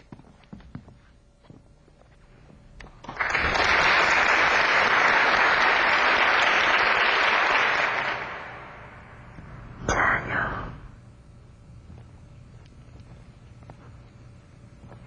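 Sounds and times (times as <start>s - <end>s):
applause: 3.0s - 9.2s.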